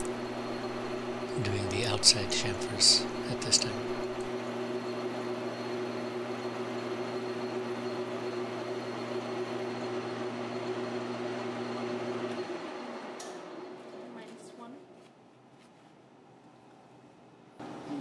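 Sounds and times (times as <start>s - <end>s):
metal lathe whirring hum: 0.0s - 14.0s.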